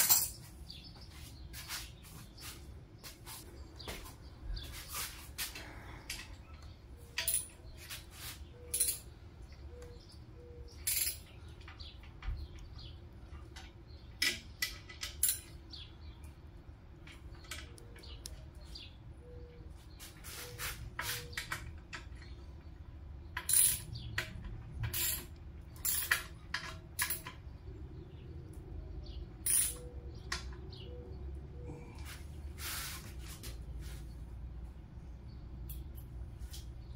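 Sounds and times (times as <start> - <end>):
metallic clinks of hand tools: 0.0 - 0.5, 7.2 - 7.6, 8.7 - 9.1, 10.8 - 11.3, 29.4 - 29.9.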